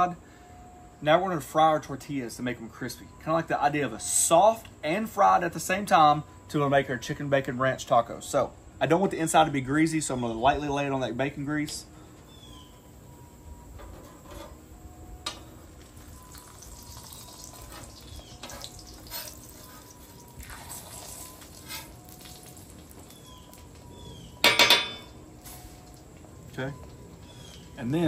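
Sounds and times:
tortilla sizzling on griddle: 15.4s - 26.3s
metal spatula on griddle: 16.7s - 22.8s.

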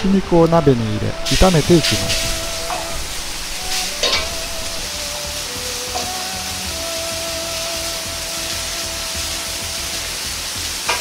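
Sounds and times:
soft background music: 0.0s - 11.0s
meat sizzling in hot oil: 1.2s - 11.0s.

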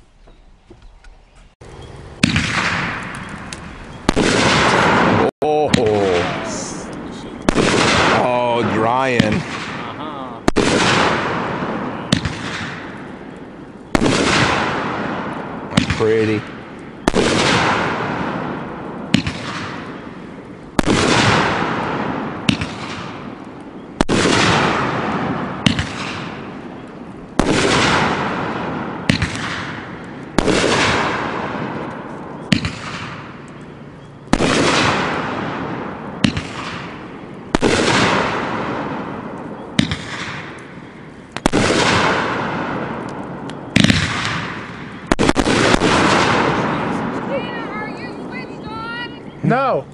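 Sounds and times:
firework bangs: 1.6s - 49.8s
small firework pops: 12.1s - 13.0s, 19.1s - 20.0s, 22.4s - 25.0s, 25.6s - 28.4s, 29.0s - 33.6s, 36.2s - 36.9s, 39.3s - 40.7s, 41.3s - 47.3s.

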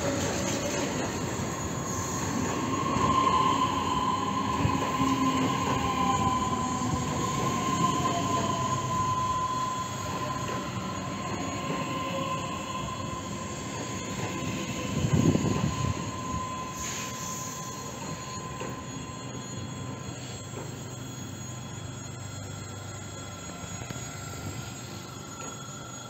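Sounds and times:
electric train rolling slowly: 0.0s - 26.0s
steady high squeal: 0.0s - 26.0s
traction motor whine: 0.0s - 26.0s.

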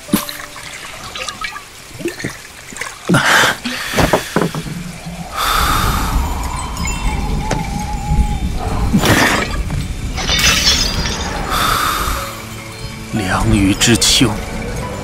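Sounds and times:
dripping water: 0.0s - 12.7s
steady rushing noise: 3.9s - 10.3s
sharp gasping breath: 5.3s - 6.4s, 11.5s - 12.4s.

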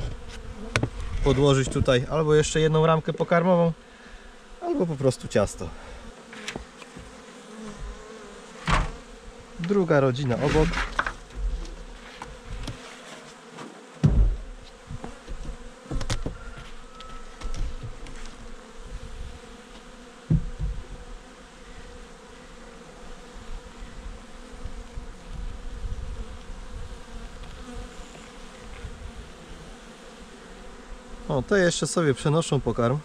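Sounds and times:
honeybees humming: 0.0s - 33.0s
hive tool knocking: 8.6s - 9.8s, 14.0s - 16.6s, 20.2s - 20.9s.

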